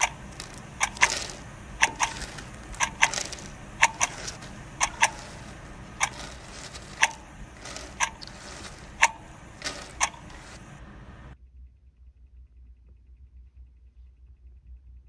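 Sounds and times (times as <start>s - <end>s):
clock ticking: 0.0s - 11.4s
steady hiss: 0.0s - 11.4s.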